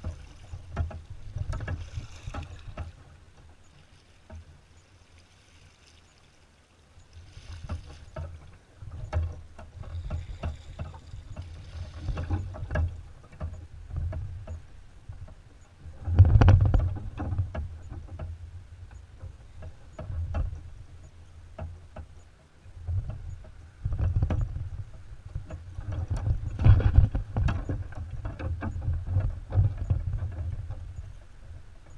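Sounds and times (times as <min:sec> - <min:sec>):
paddle thumps and clicks: 0:00.0 - 0:04.6, 0:07.4 - 0:31.9
paddle splashing in water: 0:00.0 - 0:13.6.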